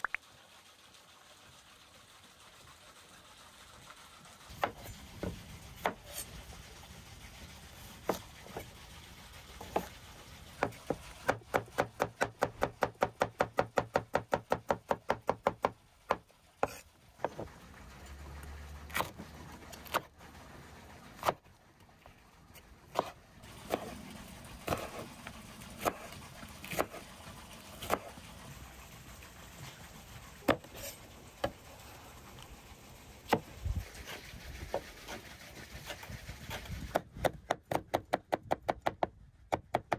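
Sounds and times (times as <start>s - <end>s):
knife chopping on wooden board: 4.5s - 6.2s, 8.0s - 8.7s, 9.6s - 9.9s, 10.6s - 17.5s, 22.9s - 24.0s, 24.7s - 25.0s, 25.8s - 27.0s, 27.8s - 28.1s, 36.5s - 39.9s.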